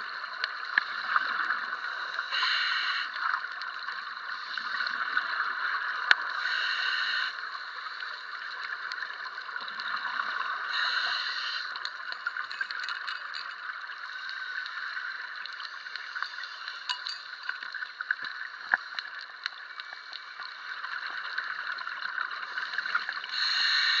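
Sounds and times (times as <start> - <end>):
underwater hiss: 0.9 - 3.4, 4.2 - 8.6, 10.4 - 11.9, 22.4 - 24.0.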